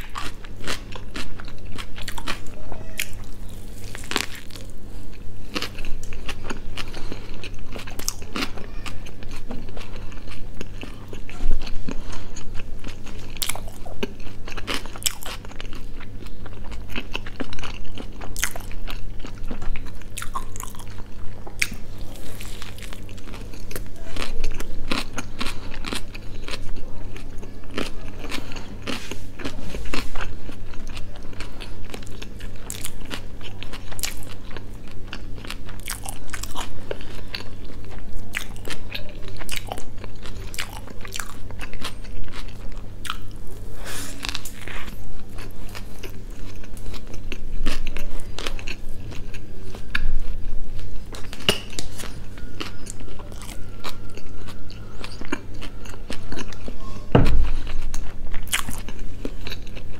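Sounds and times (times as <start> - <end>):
chewing a burger: 0.0 - 59.9
low steady hum: 0.0 - 59.9.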